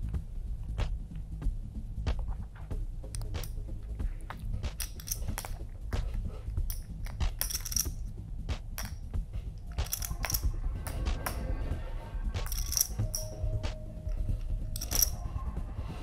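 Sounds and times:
low rumble: 0:00.0 - 0:16.0
poker chips clicking: 0:03.1 - 0:03.6, 0:04.3 - 0:05.6, 0:06.6 - 0:08.1, 0:08.8 - 0:09.0, 0:09.6 - 0:11.4, 0:12.4 - 0:13.4, 0:14.0 - 0:15.2.

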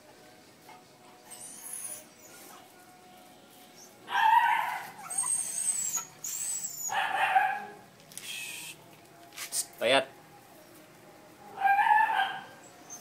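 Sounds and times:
puppies yelping and whining: 0:01.3 - 0:02.7, 0:03.8 - 0:07.6, 0:11.6 - 0:13.0.

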